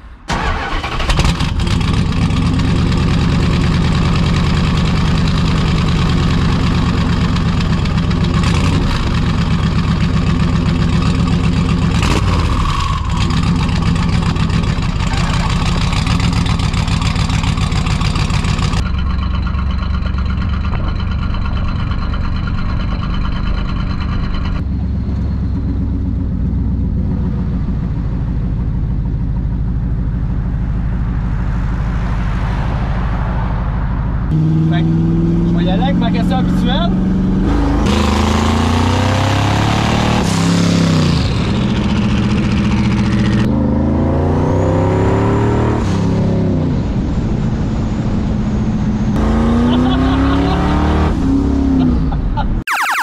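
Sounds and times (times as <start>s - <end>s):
car engine starting and idling: 0.0s - 39.5s.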